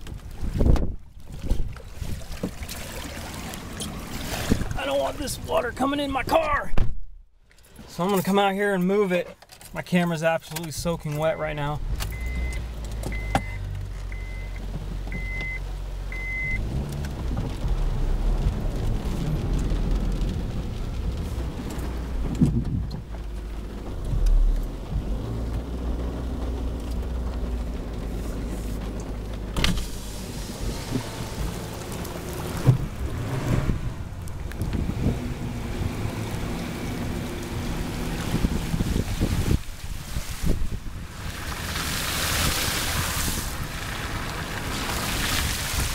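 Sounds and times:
heavy rain on car body: 3.2 - 6.6, 12.3 - 45.9
car engine running: 10.8 - 40.0
dashboard warning chime beeping: 11.1 - 16.6.

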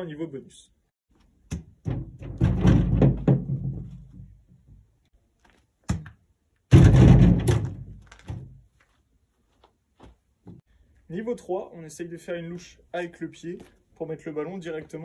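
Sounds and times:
loud thuds: 1.5 - 4.8, 6.7 - 8.6.

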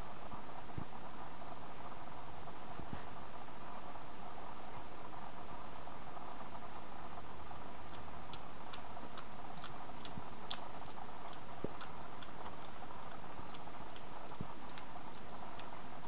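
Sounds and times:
background hiss: 0.0 - 16.0
puppies suckling clicks: 7.9 - 16.0.

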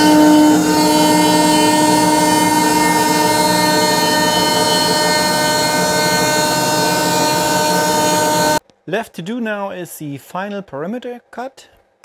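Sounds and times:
router spindle whine: 0.0 - 8.6
rushing noise of milling cut: 0.0 - 8.6.

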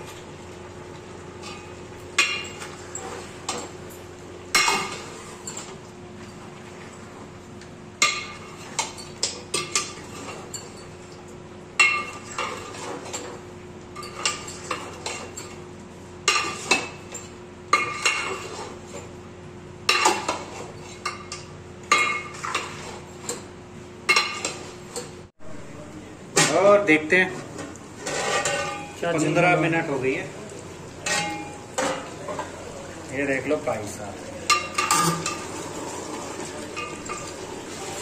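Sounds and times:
metal spatula scraping a pot: 17.8 - 19.1, 22.0 - 23.4, 28.0 - 29.0.

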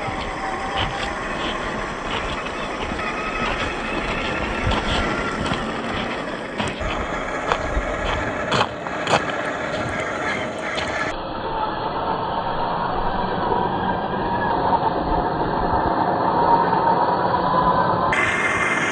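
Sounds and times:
tyres crunching on gravel: 0.0 - 11.1
electric motors whirring: 0.0 - 11.7.

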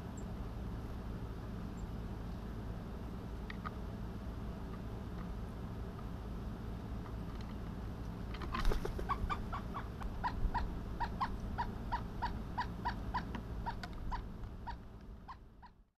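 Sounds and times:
woodpecker call notes: 8.6 - 15.8.

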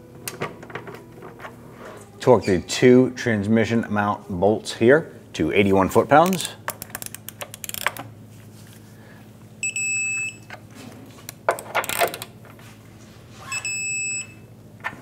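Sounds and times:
ratchet clicks: 6.2 - 8.1, 11.6 - 12.3.

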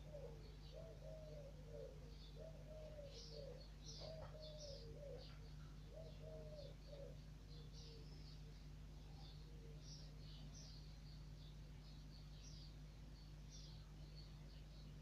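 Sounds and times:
dove cooing: 0.0 - 8.1
small birds chirping: 0.0 - 15.0
steady low hum: 0.0 - 15.0.

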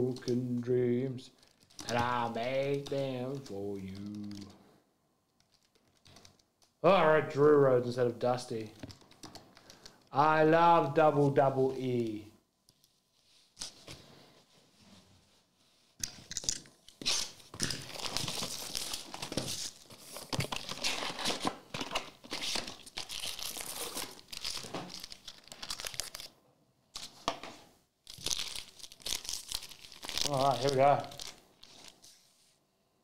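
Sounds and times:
foil packs crinkling: 17.1 - 26.3, 28.1 - 32.0.

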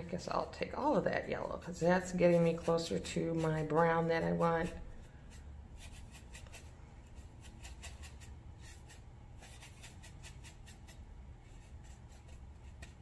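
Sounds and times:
paintbrush scrubbing on plastic: 0.1 - 13.0.

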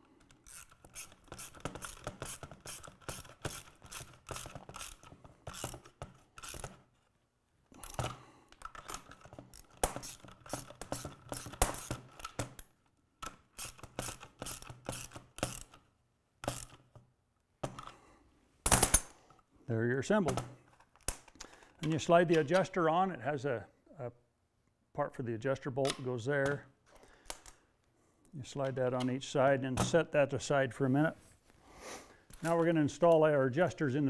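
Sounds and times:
ratchet wrench clicking: 0.3 - 6.8, 13.6 - 15.8, 16.4 - 16.8.

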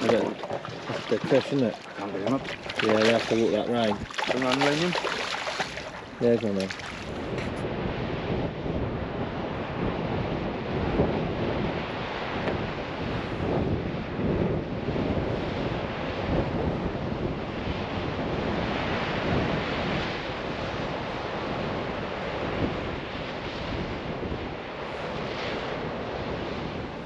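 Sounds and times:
waves washing: 0.0 - 7.6
wind gusting against microphone: 0.0 - 27.0.

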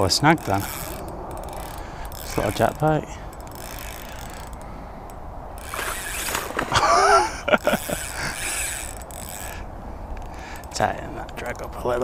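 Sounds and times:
spinning reel winding: 0.4 - 4.6, 5.6 - 6.5, 7.6 - 10.8.

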